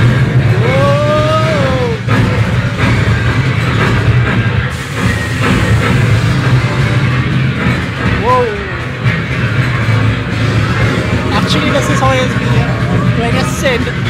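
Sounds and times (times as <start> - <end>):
loud soundtrack music: 0.0 - 14.0.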